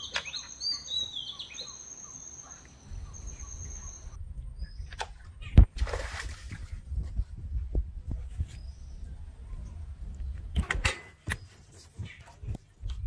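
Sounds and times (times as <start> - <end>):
birds chirping: 0.0 - 5.6.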